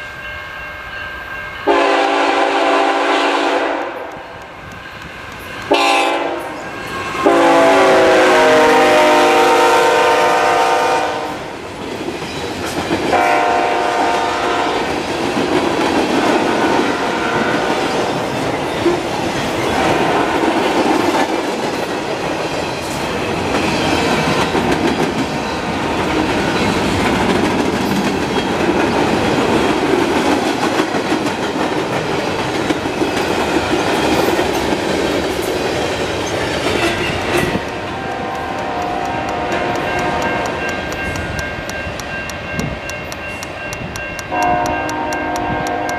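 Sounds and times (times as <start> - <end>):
train wheels clacking on rails: 1.6 - 45.9
locomotive horn: 1.7 - 4.1, 5.7 - 6.6, 7.2 - 11.4, 13.1 - 14.9, 16.8 - 17.8, 36.8 - 40.6, 44.3 - 45.9.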